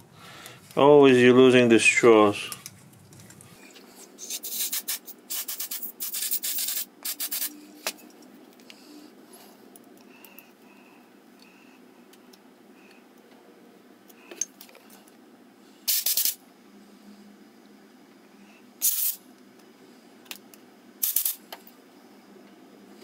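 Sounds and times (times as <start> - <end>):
aerosol can spraying: 4.2 - 7.6, 15.9 - 16.4, 18.8 - 19.2, 21.0 - 21.4
small parts clicking: 21.0 - 21.6.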